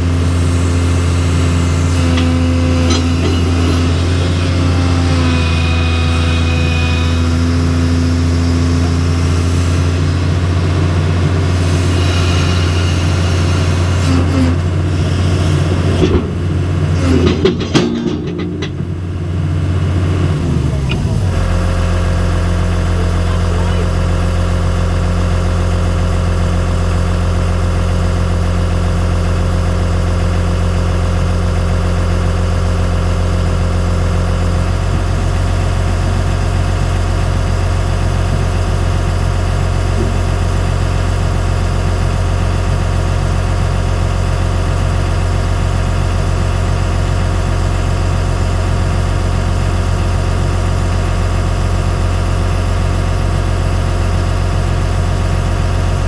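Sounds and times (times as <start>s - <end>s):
excavator diesel engine idling: 0.0s - 56.0s.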